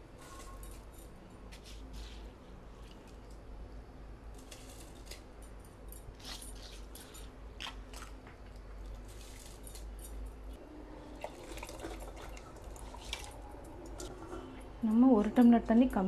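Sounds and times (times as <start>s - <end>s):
water pouring: 10.8s - 14.5s.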